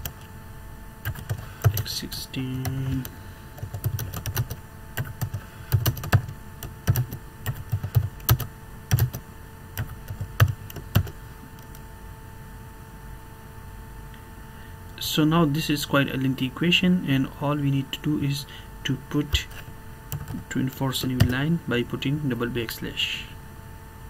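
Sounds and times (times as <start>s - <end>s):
faint steady hum: 0.0s - 24.0s
typing on computer keyboard: 1.0s - 1.9s, 2.6s - 9.2s, 9.8s - 11.8s, 20.1s - 20.4s.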